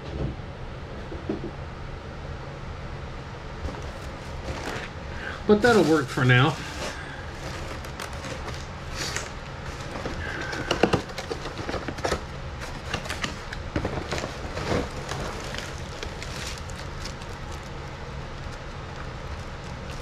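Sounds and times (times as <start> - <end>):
steady low hum: 0.0 - 20.0
cardboard box scraping and rustling: 3.7 - 17.7.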